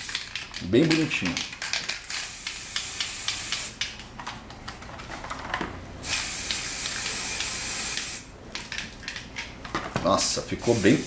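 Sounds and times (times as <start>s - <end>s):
spray paint can hissing: 2.1s - 3.8s, 6.0s - 8.3s, 10.6s - 11.0s.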